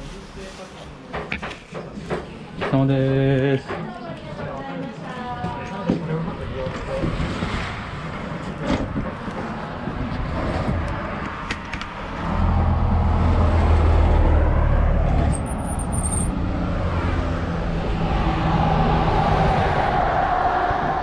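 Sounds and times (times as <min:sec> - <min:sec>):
road traffic passing: 0:06.1 - 0:21.0
heavy vehicle engine rumble: 0:07.8 - 0:21.0.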